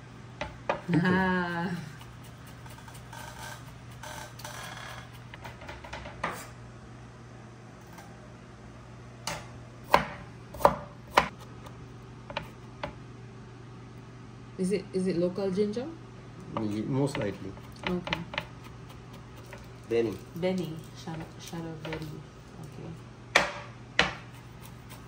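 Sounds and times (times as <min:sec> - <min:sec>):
steady low hum: 0:00.0 - 0:25.0
knife chopping on cutting board: 0:09.9 - 0:11.4, 0:16.6 - 0:19.7, 0:23.4 - 0:25.0.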